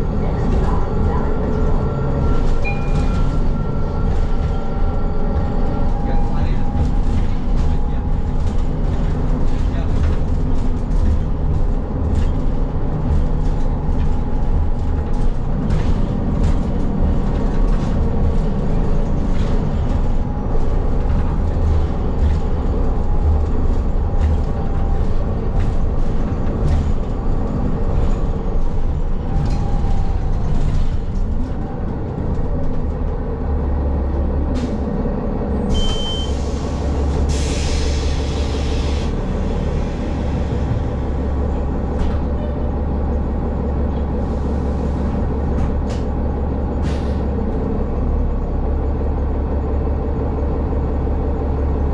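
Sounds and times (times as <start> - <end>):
bus engine and road rumble: 0.0 - 51.9
short high beep: 35.7 - 36.4
compressed air hissing: 36.4 - 39.1.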